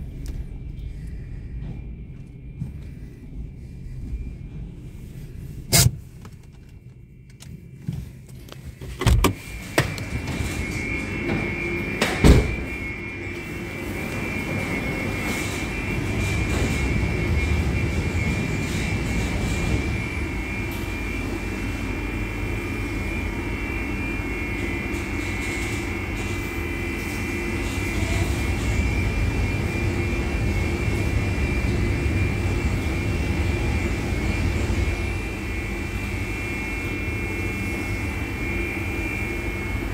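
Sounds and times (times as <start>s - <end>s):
steady high tone: 9.6s - 39.9s.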